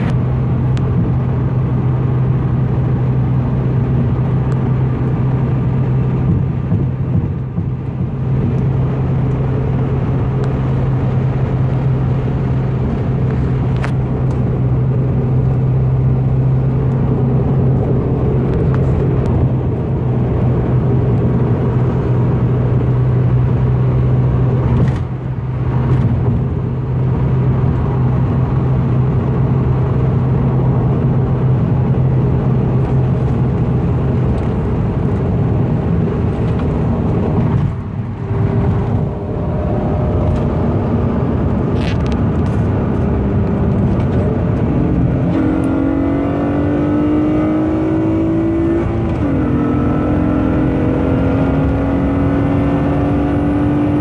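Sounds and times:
car exhaust drone: 0.0 - 54.0
engine revving under full throttle: 37.3 - 54.0.

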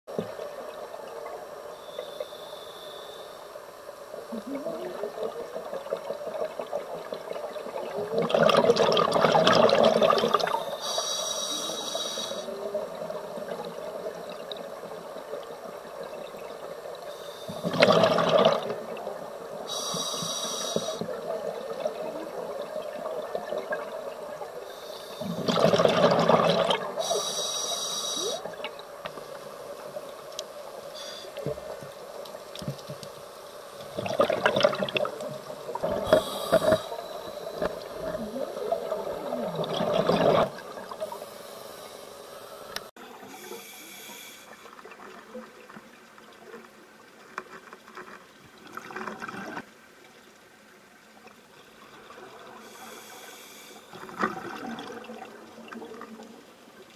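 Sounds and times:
exhaled bubbles underwater: 4.2 - 10.7, 12.6 - 19.8, 21.0 - 27.2, 33.8 - 41.2, 53.9 - 56.4
regulator hissing inhalation: 10.6 - 12.5, 19.7 - 21.1, 27.0 - 28.5, 36.0 - 37.6, 43.3 - 44.7, 52.6 - 53.9.

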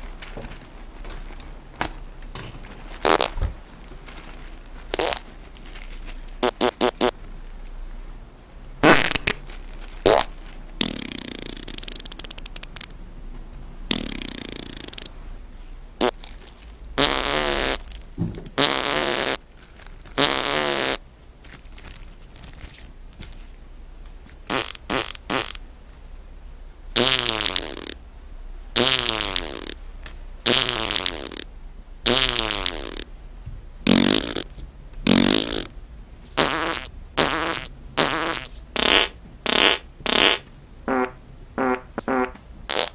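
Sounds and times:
fart sound effects: 3.0 - 3.4, 4.9 - 5.2, 6.4 - 7.2, 8.8 - 9.4, 10.0 - 12.9, 13.9 - 15.1, 17.0 - 17.8, 18.6 - 19.4, 20.2 - 21.0, 24.5 - 25.6, 27.0 - 28.0, 28.8 - 29.8, 30.4 - 33.1, 33.8 - 35.7, 36.4 - 42.9.

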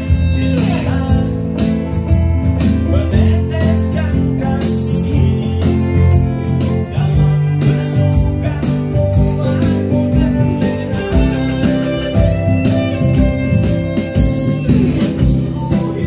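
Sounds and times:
band playing a song: 0.0 - 16.0
strong bass line: 0.0 - 16.0.

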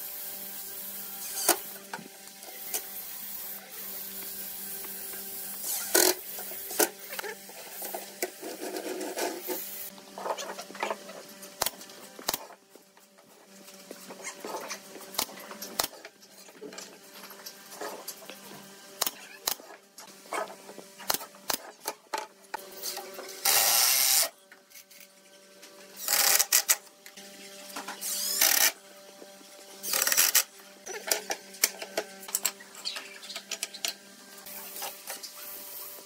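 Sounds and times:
power tool bursts: 22.8 - 24.3.

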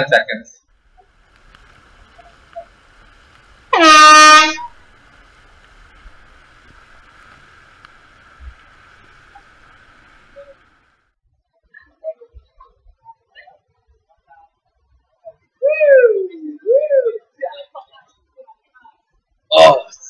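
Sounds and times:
faint steady hiss: 0.0 - 11.2
signal horn blast: 3.7 - 4.8.

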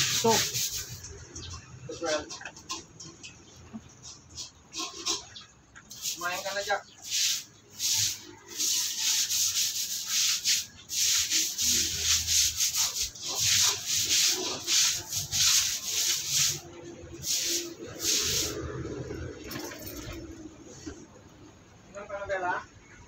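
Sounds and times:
scrubbing wet concrete floor: 0.0 - 3.0, 5.9 - 19.1.

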